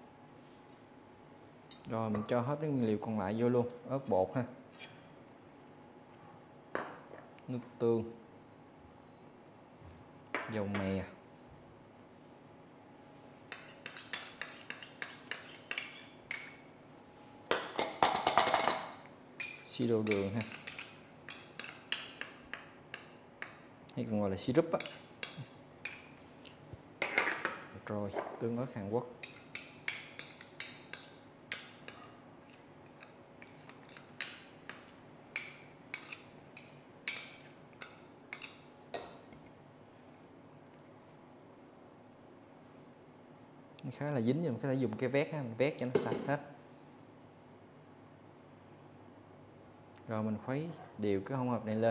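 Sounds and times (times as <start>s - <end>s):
spoon clinking on porcelain bowl: 13.5s - 16.6s, 19.4s - 23.6s.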